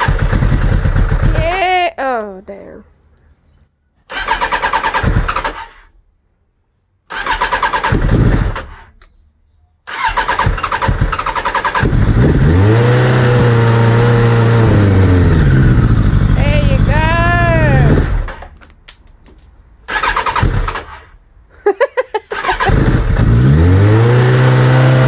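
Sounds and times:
motorcycle starter cranking: 0:00.0 - 0:01.4, 0:04.1 - 0:05.9, 0:07.1 - 0:09.1, 0:09.9 - 0:12.8, 0:17.5 - 0:18.6, 0:19.8 - 0:21.2, 0:22.3 - 0:23.4
motorcycle engine running: 0:00.0 - 0:01.9, 0:07.2 - 0:08.8, 0:10.0 - 0:18.4, 0:22.4 - 0:25.0.

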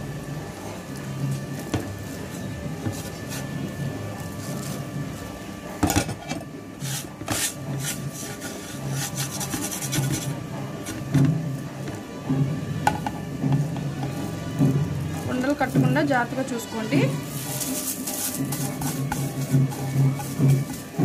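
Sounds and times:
metal utensil scraping plastic bowl: 0:05.9 - 0:11.3, 0:15.3 - 0:21.0.

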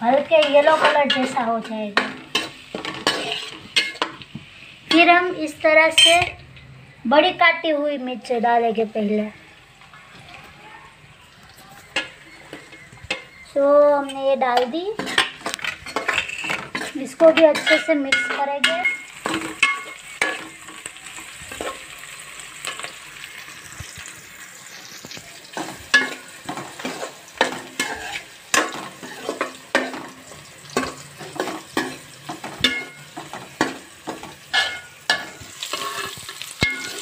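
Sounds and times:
food sizzling in hot oil: 0:00.0 - 0:06.3, 0:08.2 - 0:37.0
spoon scraping metal pot: 0:02.3 - 0:04.1, 0:14.0 - 0:20.5, 0:25.6 - 0:30.0, 0:34.5 - 0:37.0.

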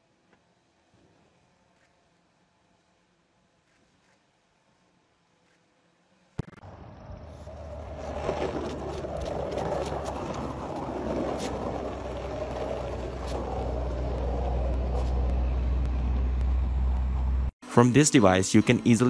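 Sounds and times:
skateboard wheels rolling on asphalt: 0:06.6 - 0:17.4.

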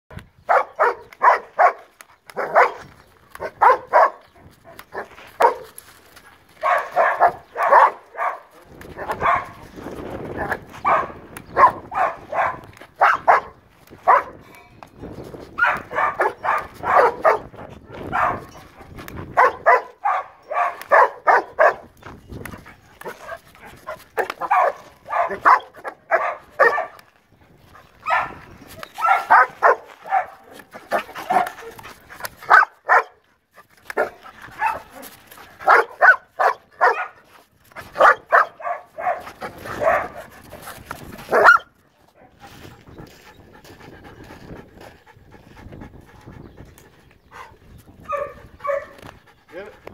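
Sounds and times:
dog barking hard: 0:00.5 - 0:05.7, 0:06.6 - 0:09.7, 0:10.3 - 0:14.4, 0:15.6 - 0:18.5, 0:19.3 - 0:21.9, 0:23.0 - 0:27.0, 0:28.0 - 0:28.4, 0:29.0 - 0:31.8, 0:32.4 - 0:33.2, 0:34.0 - 0:37.2, 0:37.8 - 0:40.3, 0:41.3 - 0:41.7, 0:48.1 - 0:49.0.

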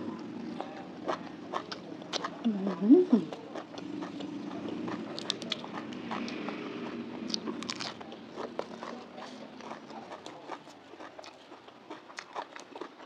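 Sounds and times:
chewing crisp vegetables: 0:00.0 - 0:13.0.

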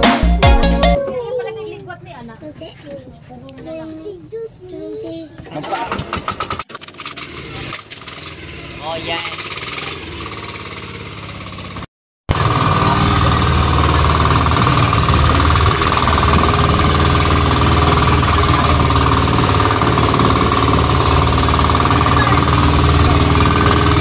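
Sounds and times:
boat engine running: 0:06.2 - 0:24.0.

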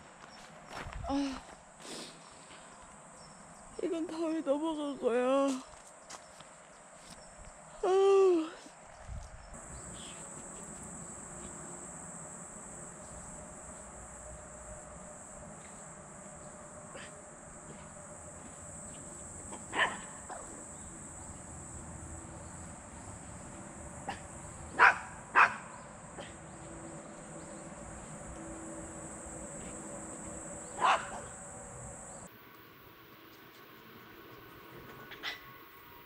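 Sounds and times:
insects chirring: 0:00.0 - 0:36.0
small dog barking: 0:19.5 - 0:20.6, 0:24.0 - 0:26.4, 0:30.8 - 0:31.3.

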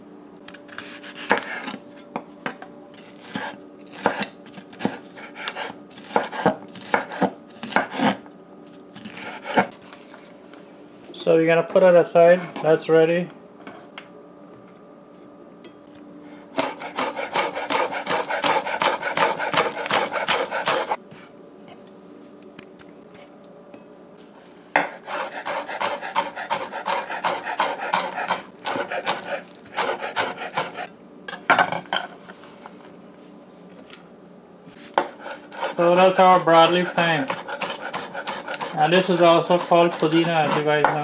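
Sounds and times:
knife chopping on wooden board: 0:03.2 - 0:08.2, 0:09.0 - 0:09.7, 0:16.6 - 0:21.0, 0:24.8 - 0:30.9, 0:34.9 - 0:41.0.

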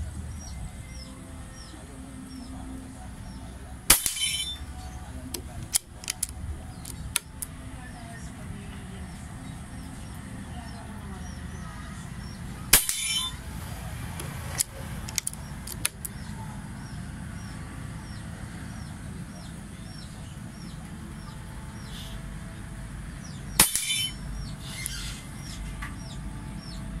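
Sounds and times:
bird chirping: 0:00.0 - 0:27.0
air rifle shot: 0:03.9 - 0:04.6, 0:12.7 - 0:13.4, 0:23.6 - 0:24.2
metallic ring of steel target: 0:03.9 - 0:05.2, 0:12.6 - 0:13.5, 0:23.5 - 0:24.5
light clicks: 0:14.2 - 0:16.3.

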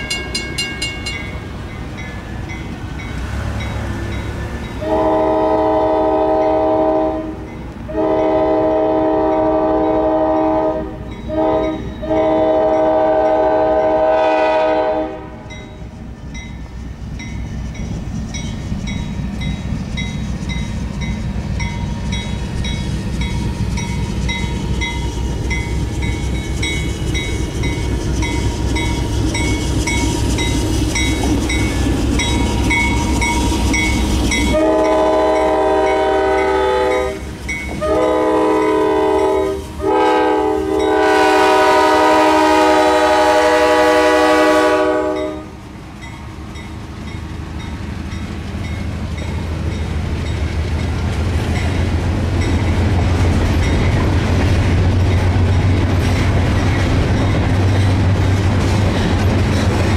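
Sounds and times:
railroad crossing bell dinging: 0:00.0 - 0:08.5, 0:09.2 - 0:14.1, 0:15.4 - 0:41.8, 0:43.2 - 0:54.2, 0:55.0 - 0:59.9
diesel locomotive rumble: 0:00.0 - 0:59.9
locomotive air horn blasts: 0:04.8 - 0:15.6, 0:34.4 - 0:45.6.

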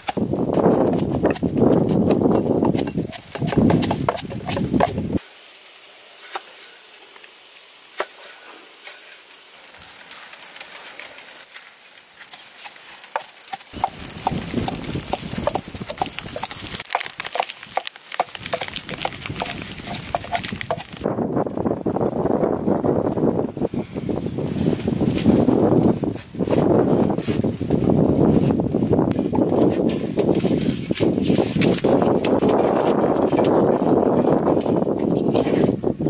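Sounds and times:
wind buffeting microphone: 0:00.0 - 0:05.2, 0:13.8 - 0:16.9, 0:18.3 - 0:36.0.

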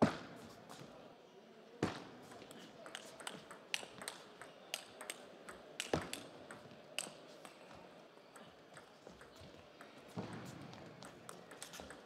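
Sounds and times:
table tennis ball hits: 0:02.8 - 0:07.2.

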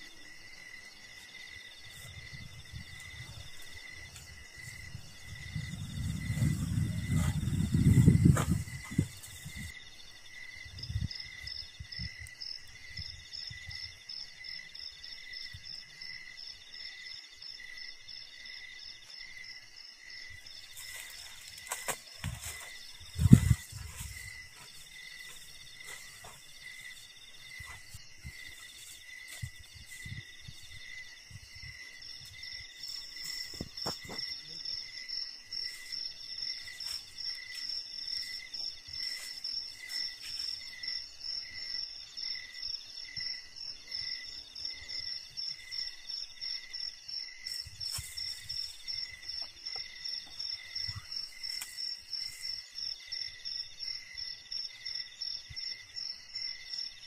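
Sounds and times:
insect ticking: 0:47.5 - 0:53.0.

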